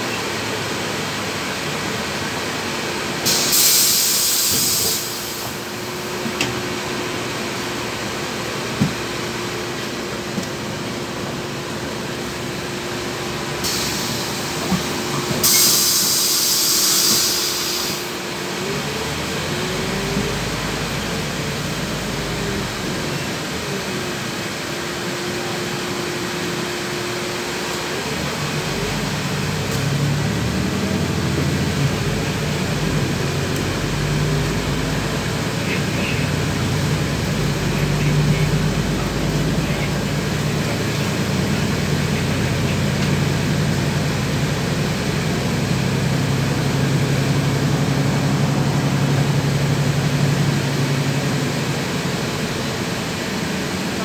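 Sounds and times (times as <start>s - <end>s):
bus engine drone and whine: 0.0s - 54.0s
air hiss: 3.2s - 5.7s, 13.6s - 18.2s.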